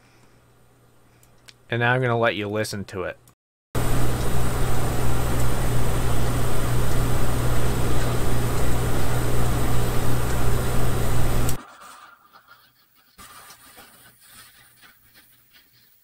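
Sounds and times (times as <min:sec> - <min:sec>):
ceiling fan whirring: 0:03.8 - 0:11.6
low hum: 0:03.8 - 0:11.6
computer fans whirring: 0:03.8 - 0:12.0.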